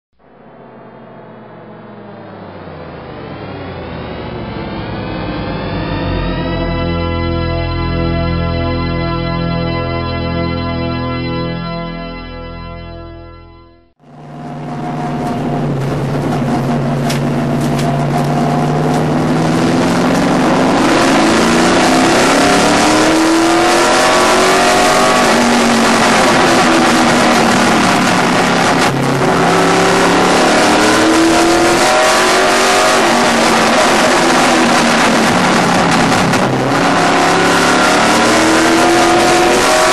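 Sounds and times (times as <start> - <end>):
race car engine revving: 0.2 - 8.0, 14.0 - 39.9
wind and road noise: 14.0 - 39.9.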